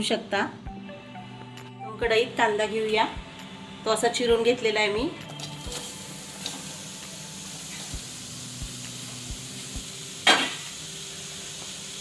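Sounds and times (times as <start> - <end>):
steady hiss: 5.6 - 12.0.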